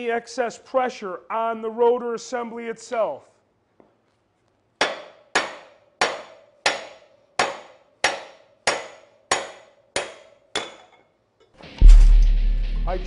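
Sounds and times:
hammer striking metal tool: 4.8 - 11.1.

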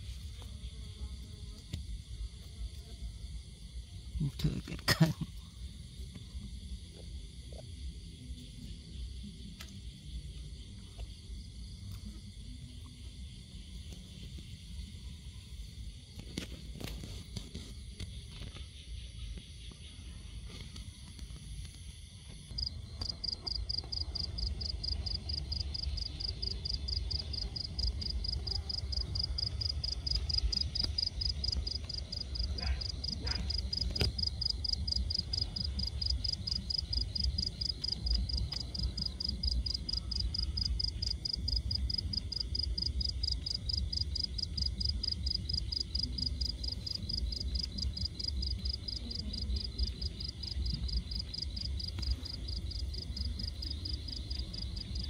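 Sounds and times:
cricket trilling: 0.1 - 55.0.

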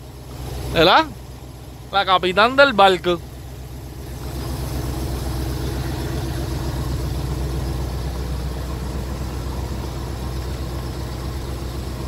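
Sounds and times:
boat engine humming: 0.0 - 12.0.

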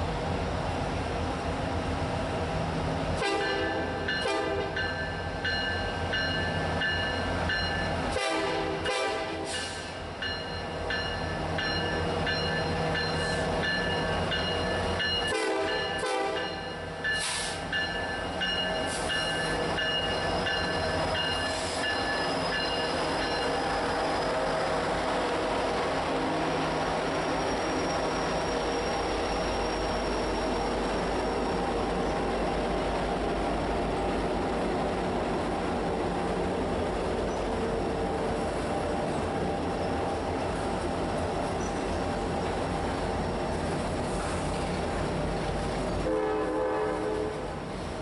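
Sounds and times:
rolling train cars: 0.0 - 48.0
locomotive chime horn blasts: 3.2 - 5.0, 7.8 - 9.8, 14.6 - 17.3, 46.0 - 47.5.

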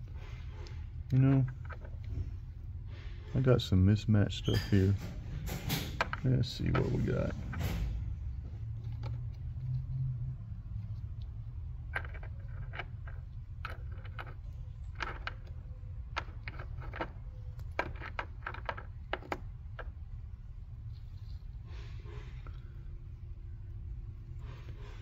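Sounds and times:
steady low hum: 0.0 - 25.0
small metal parts clinking: 11.8 - 20.0.

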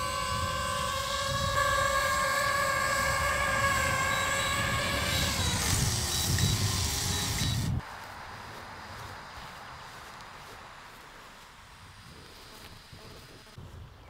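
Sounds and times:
drone propellers whining: 0.0 - 7.8.

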